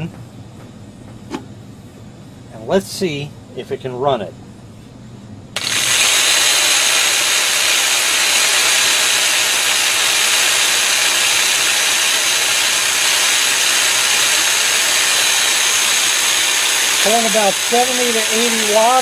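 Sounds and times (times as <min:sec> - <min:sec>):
jigsaw running with high whine: 0:05.6 - 0:19.0.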